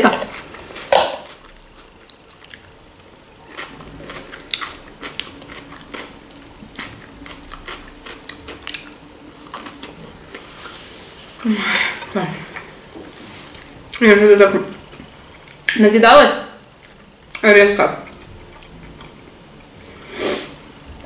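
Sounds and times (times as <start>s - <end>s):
person chewing crunchy food: 0.0s - 13.8s, 14.9s - 15.7s, 18.0s - 20.1s.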